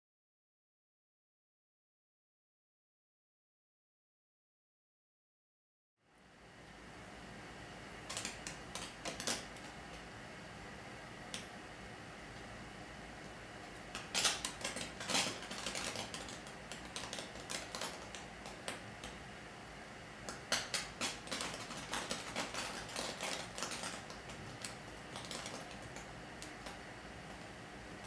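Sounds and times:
sparks crackling: 13.8 - 19.2, 20.2 - 27.4.

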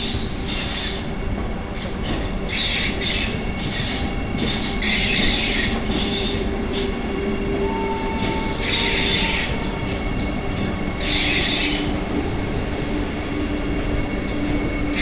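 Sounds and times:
train rolling low rumble: 0.0 - 15.0
wheel squeals: 1.8 - 13.1.

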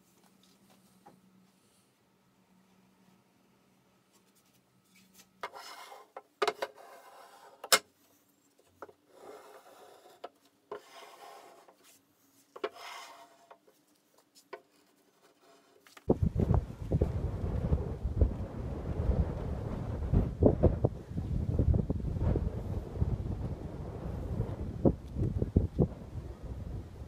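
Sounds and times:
hand plane shaving wood: 9.1 - 11.8.

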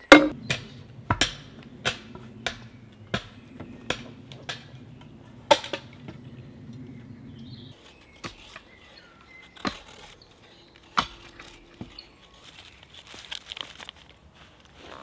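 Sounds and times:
dry wood shavings rustling: 7.7 - 15.0.

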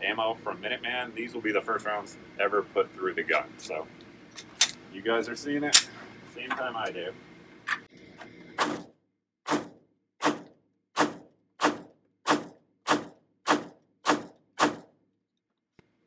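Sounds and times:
pistol shots: 9.5 - 14.9.

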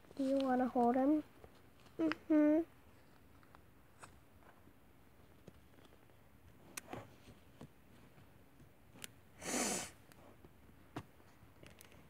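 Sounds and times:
dolls being handled: 0.0 - 9.1.

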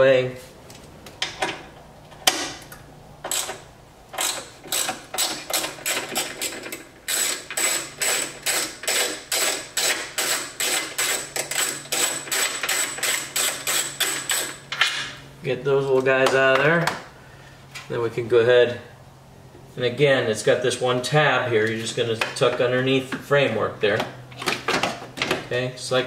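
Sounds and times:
ratchet wrench clicking: 4.2 - 14.6.

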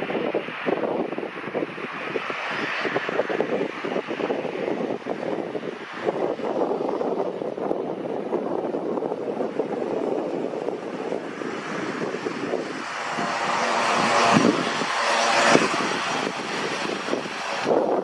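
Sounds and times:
turboprop plane taxiing: 0.0 - 18.0.

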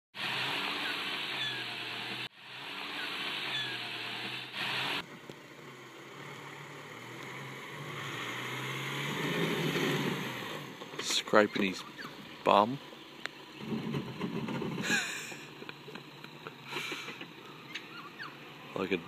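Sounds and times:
vehicle engine at low revs: 0.1 - 19.0
bird chirps: 11.4 - 13.6, 17.4 - 18.5.

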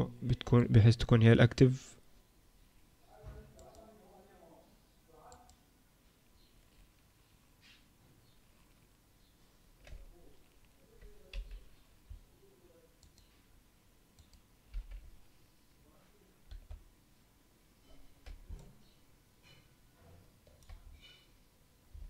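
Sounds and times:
keyboard and mouse clicks: 3.6 - 3.9, 9.8 - 12.2, 13.0 - 13.3, 14.2 - 15.1, 16.5 - 16.8, 18.2 - 18.8, 20.4 - 21.2.

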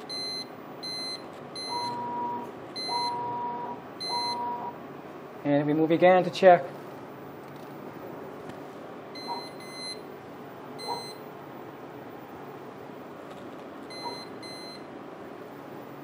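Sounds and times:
short electronic beeps: 0.1 - 4.7, 9.2 - 10.0, 10.8 - 11.2, 13.9 - 14.8.

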